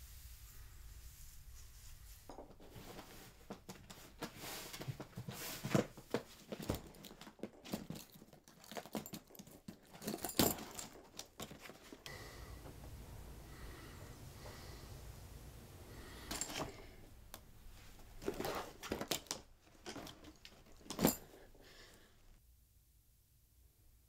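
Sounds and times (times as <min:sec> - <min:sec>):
leather suitcase handled: 0:02.5 - 0:12.1, 0:16.3 - 0:21.5
steady low hum: 0:12.1 - 0:18.2.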